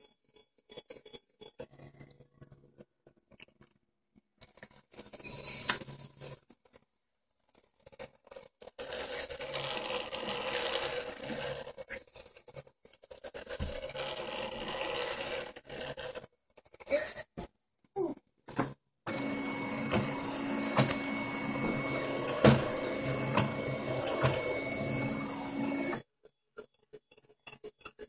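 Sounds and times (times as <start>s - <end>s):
stepper motor driving carriage: 19.1s - 26.0s.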